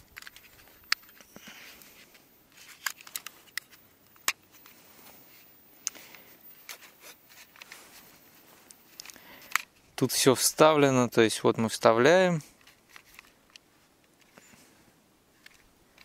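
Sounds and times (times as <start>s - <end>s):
handling noise: 0.0s - 10.1s
plastic clicks: 0.1s - 4.8s, 5.8s - 7.8s, 8.7s - 9.7s, 12.6s - 14.5s, 15.4s - 16.0s.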